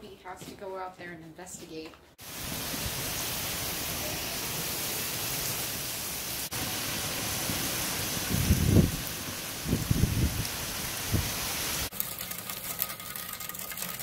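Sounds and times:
rain pouring onto grass: 2.2s - 13.3s
low rumbling gusts: 6.5s - 11.8s.

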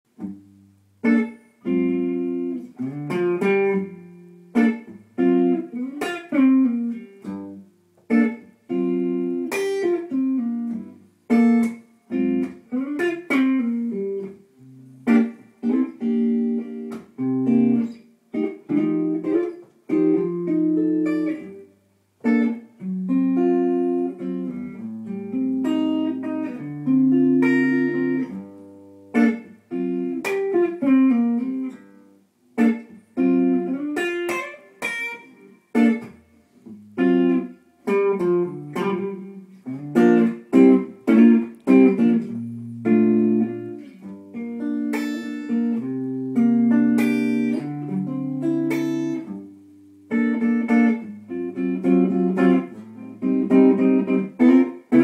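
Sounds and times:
electric guitar noodling: 1.0s - 21.6s, 32.6s - 49.4s, 50.1s - 55.0s.

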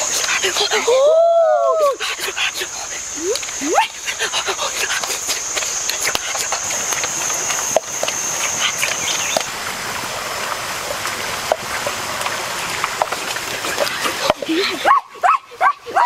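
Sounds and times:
high-pitched insect drone: 0.0s - 9.5s
constant hiss: 0.0s - 16.0s.

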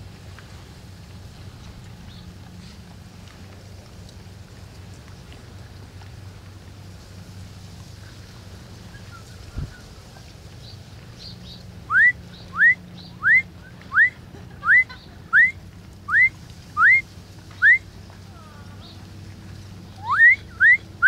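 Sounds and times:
person whistling rising notes: 11.9s - 14.8s, 15.4s - 17.0s, 17.6s - 17.8s, 20.0s - 20.8s.

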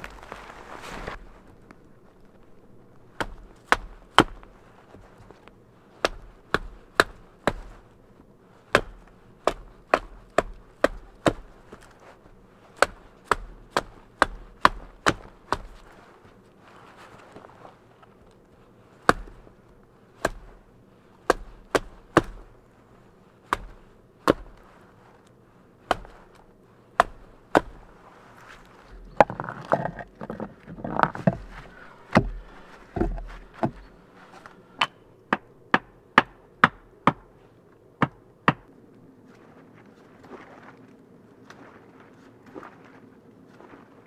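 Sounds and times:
rustling and scraping: 0.0s - 6.4s, 15.2s - 19.8s, 22.7s - 34.8s
blade chopping into wood: 3.2s - 4.4s, 6.0s - 7.8s, 8.7s - 11.6s, 12.8s - 15.8s, 19.0s - 19.4s, 20.2s - 20.5s, 21.2s - 22.4s, 23.5s - 24.6s, 25.9s - 26.2s, 27.0s - 27.9s.

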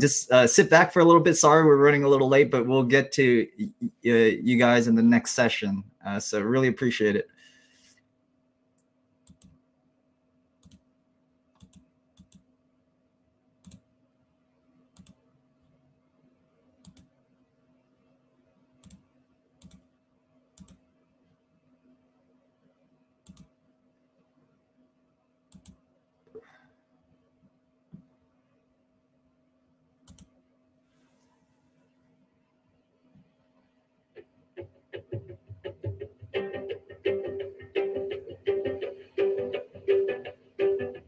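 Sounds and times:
faint electrical hum: 0.0s - 41.0s
keyboard and mouse clicks: 9.2s - 9.6s, 10.6s - 10.8s, 11.6s - 12.5s, 16.8s - 17.1s, 19.6s - 19.8s, 20.6s - 20.8s, 23.2s - 23.5s, 25.5s - 25.8s, 30.0s - 30.3s.

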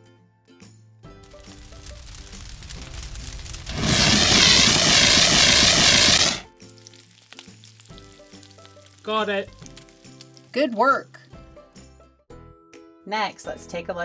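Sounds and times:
hissing spray with warbling tone: 1.3s - 6.5s
light background music: 6.6s - 14.0s.

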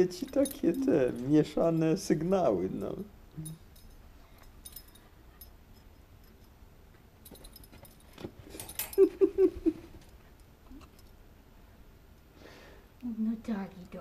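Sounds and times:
light clicking and rattling: 0.1s - 2.0s, 2.7s - 11.2s.

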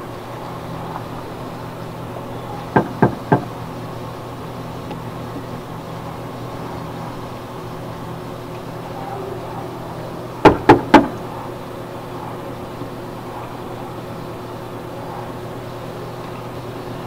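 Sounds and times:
steady low hum: 0.0s - 17.0s
knocks on a door: 2.7s - 3.5s, 10.4s - 11.1s.

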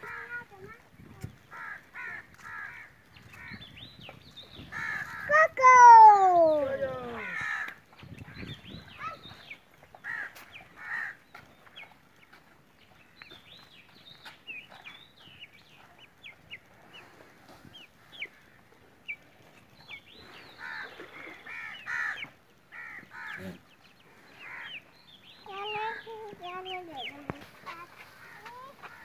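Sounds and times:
birds chirping: 0.0s - 29.0s
harsh bird calls: 1.5s - 11.9s, 19.8s - 29.0s.

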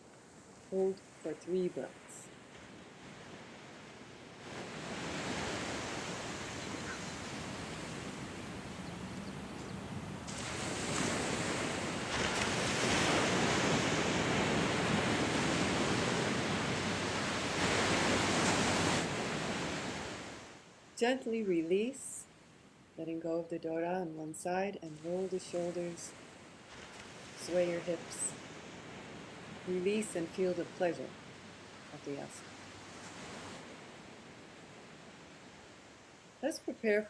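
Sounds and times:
ocean surf on sandy beach: 0.0s - 20.9s, 24.9s - 37.0s.

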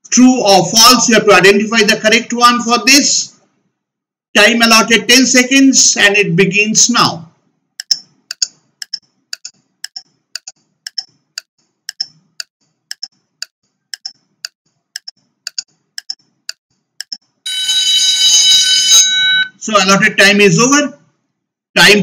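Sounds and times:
clock ticking: 7.8s - 17.3s
loud alarm buzzer: 17.5s - 19.6s.

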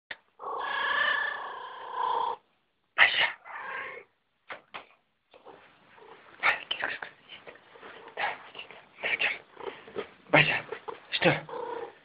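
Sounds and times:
cat yowling: 3.5s - 4.1s.

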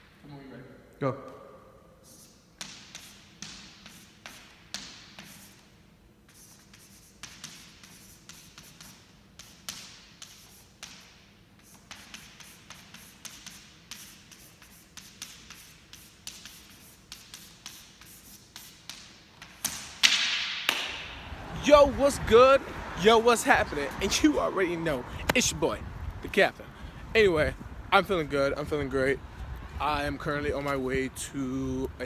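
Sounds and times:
chalk scratching on chalkboard: 2.0s - 19.6s.

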